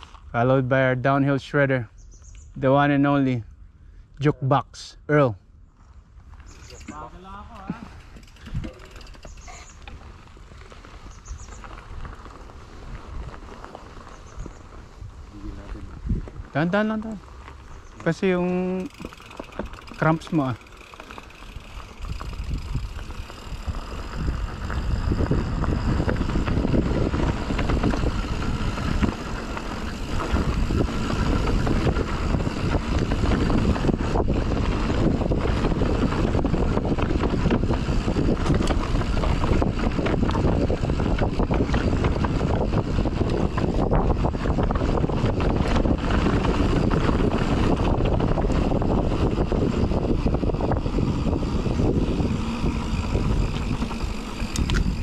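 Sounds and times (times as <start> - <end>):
wind buffeting microphone: 5.9 - 55.0
tyres rumbling on dirt: 6.4 - 55.0
bike clattering over bumps: 6.5 - 12.3, 17.4 - 55.0.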